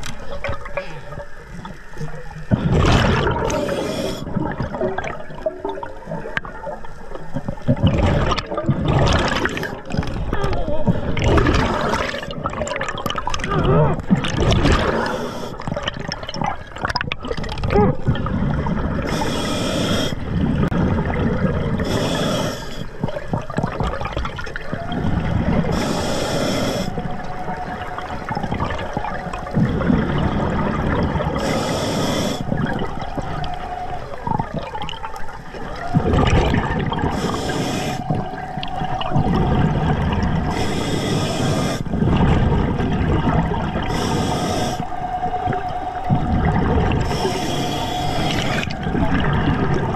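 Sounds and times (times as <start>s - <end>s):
bubbling underwater rumble: 0.0s - 19.2s, 20.2s - 25.8s, 26.9s - 31.6s, 32.4s - 40.7s, 41.4s - 49.9s
regulator breath air hiss: 3.5s - 4.3s, 14.9s - 15.6s, 19.1s - 20.2s, 21.8s - 22.9s, 25.7s - 27.0s, 31.4s - 32.6s, 37.1s - 38.2s, 40.5s - 42.0s, 43.8s - 45.0s, 47.0s - 48.7s.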